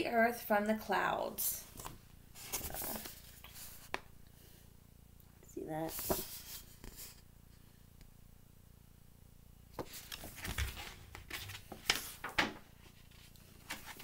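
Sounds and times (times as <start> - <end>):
book page turning: 1.8 - 4.0, 5.9 - 7.2, 9.8 - 14.0.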